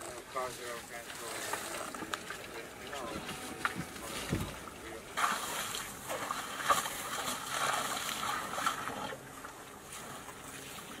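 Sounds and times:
water and mud splashing: 0.0s - 11.0s.

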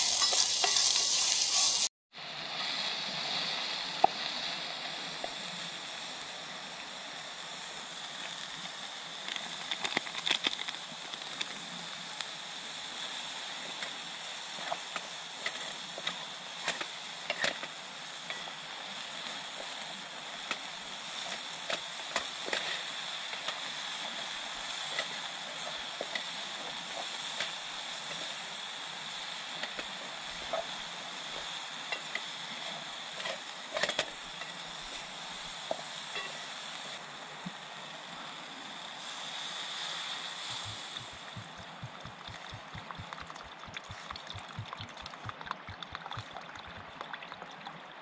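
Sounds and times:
spoon scraping metal pot: 0.0s - 1.8s.

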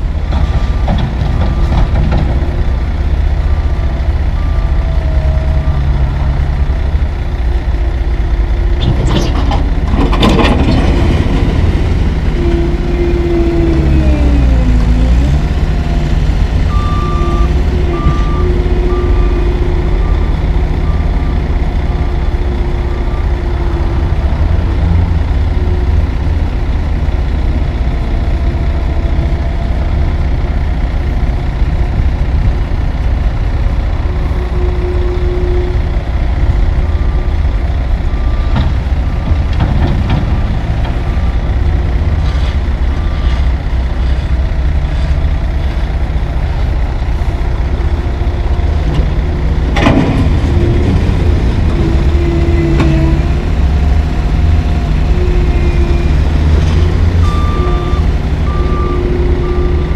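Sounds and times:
heavy diesel engines running: 0.0s - 59.9s.

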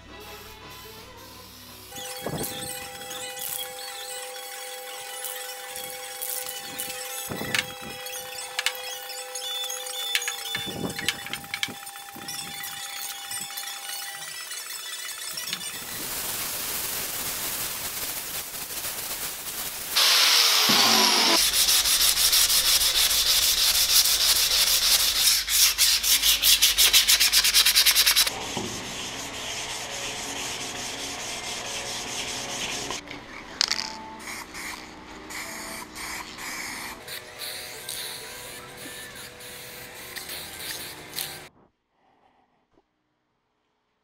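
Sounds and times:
sandpaper rubbing on steel: 20.0s - 33.0s, 34.2s - 41.5s.

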